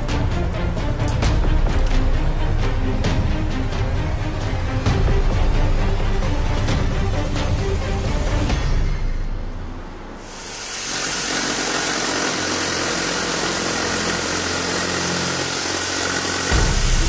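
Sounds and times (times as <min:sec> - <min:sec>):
jigsaw cutting foam: 0:10.3 - 0:17.0.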